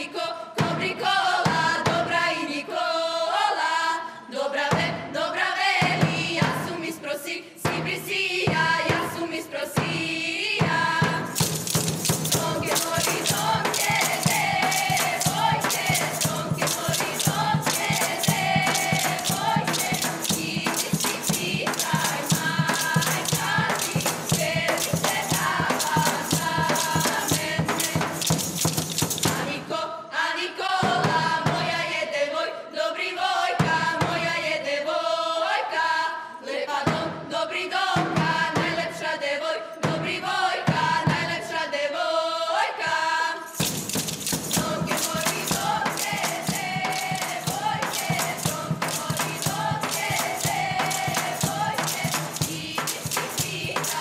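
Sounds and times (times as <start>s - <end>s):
folk choir singing in unison: 0.0s - 54.0s
tambourines jingling: 11.3s - 29.6s, 43.4s - 54.0s
wooden spoons clacking: 11.4s - 29.4s, 43.6s - 54.0s.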